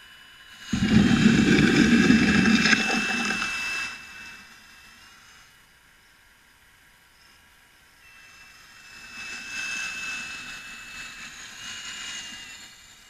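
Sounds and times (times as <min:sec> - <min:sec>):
model loader electric whine: 0:00.0 - 0:05.7, 0:07.1 - 0:13.0.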